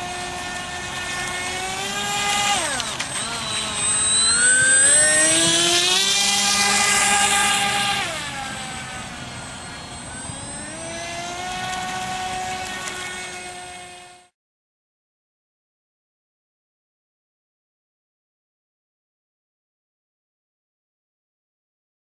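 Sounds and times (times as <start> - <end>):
model boat motor whining: 0.0 - 14.3.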